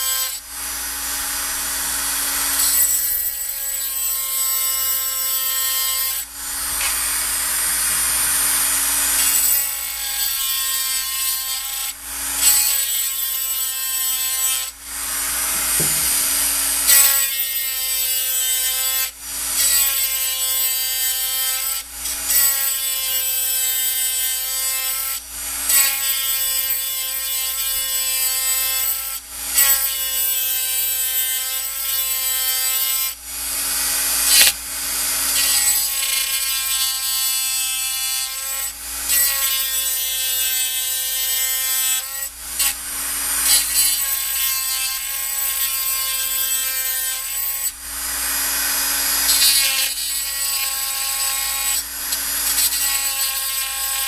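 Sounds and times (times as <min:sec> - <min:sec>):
bit grinding metal: 0:02.5 - 0:33.2.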